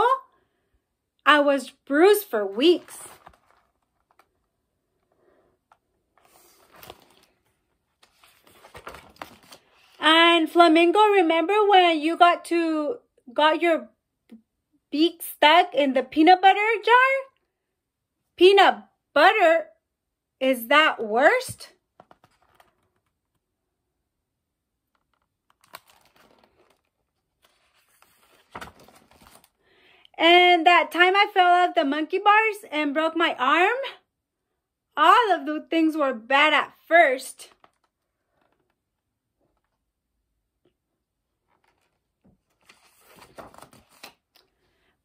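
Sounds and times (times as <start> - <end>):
book page turning: 2.5 - 5.1, 5.7 - 10.0, 22.0 - 23.4, 24.9 - 29.6, 37.5 - 38.8, 41.4 - 44.6.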